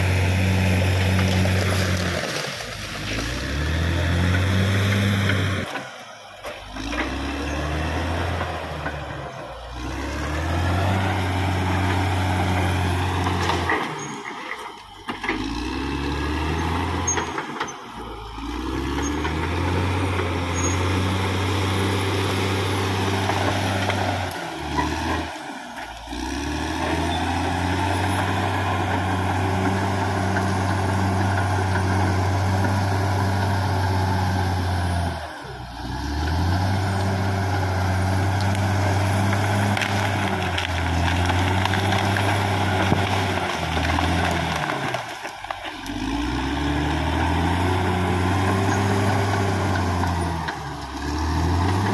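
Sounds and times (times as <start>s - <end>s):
bulldozer diesel engine running hard: 0.0s - 51.9s.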